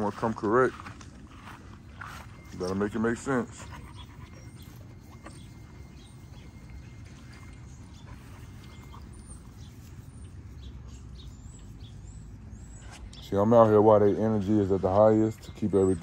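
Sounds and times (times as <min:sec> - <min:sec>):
dog footfalls on grass: 0:00.0 - 0:03.4.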